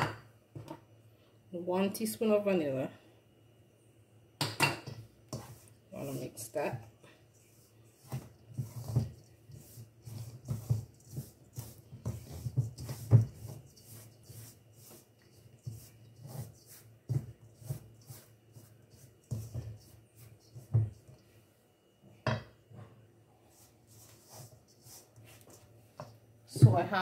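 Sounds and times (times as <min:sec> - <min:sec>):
wooden spoon scraping mixture: 0:04.9 - 0:21.4, 0:23.4 - 0:27.0.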